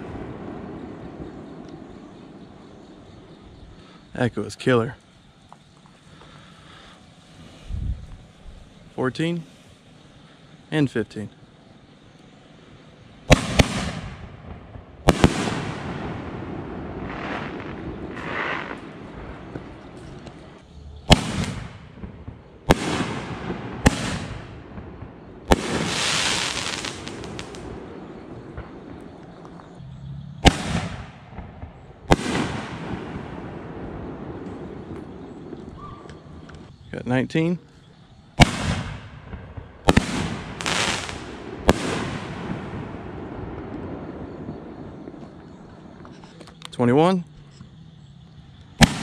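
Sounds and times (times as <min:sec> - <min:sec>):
sharp firework reports with echo: 0:00.0 - 0:05.2, 0:06.0 - 0:46.1, 0:48.7 - 0:49.0
high hissing crackle: 0:00.0 - 0:49.0
firework mortar launch bang: 0:13.3 - 0:20.2, 0:21.1 - 0:29.0, 0:30.4 - 0:36.1, 0:38.4 - 0:44.8, 0:48.8 - 0:49.0.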